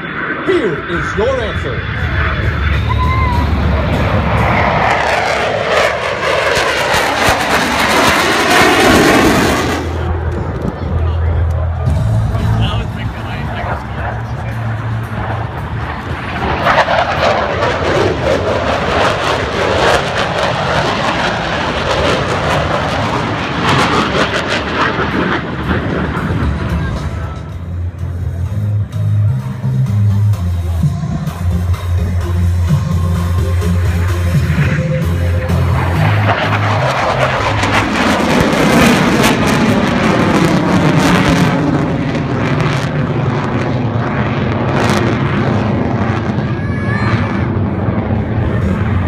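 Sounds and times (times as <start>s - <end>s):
jet engine roar: 0.0s - 49.0s
music over loudspeakers: 26.7s - 37.0s.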